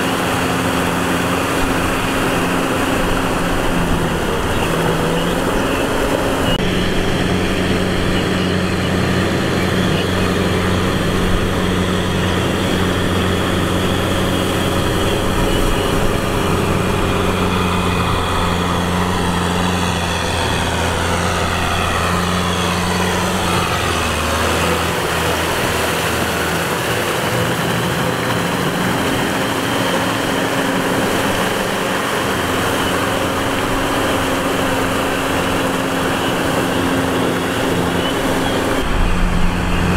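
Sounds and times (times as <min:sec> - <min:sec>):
tractor diesel engine under load: 0:00.0 - 0:39.9
faint falling whine: 0:31.0 - 0:39.9.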